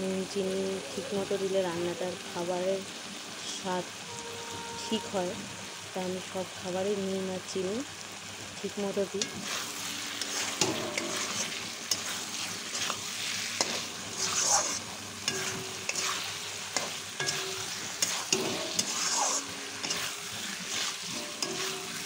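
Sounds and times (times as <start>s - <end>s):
food sizzling: 0.0s - 22.0s
metal spatula scraping a pan: 9.2s - 22.0s.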